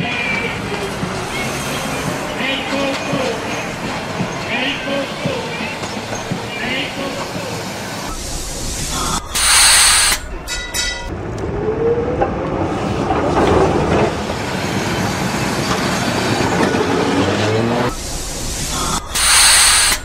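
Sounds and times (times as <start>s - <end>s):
tram running on rails: 0.0s - 20.0s
air hiss burst: 8.2s - 10.3s, 18.0s - 20.0s.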